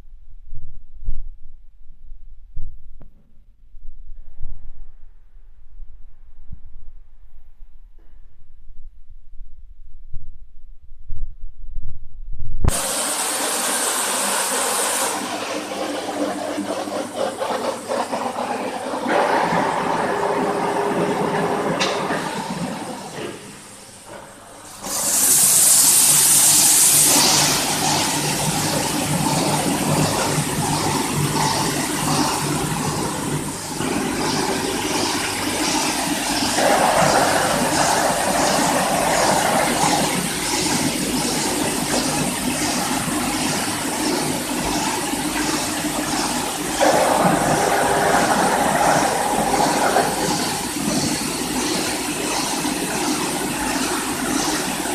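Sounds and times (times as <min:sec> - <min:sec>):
tape slitting machine running: 0:12.8 - 0:23.5, 0:24.8 - 0:44.8, 0:45.4 - 0:54.8
loud hiss: 0:24.8 - 0:28.0.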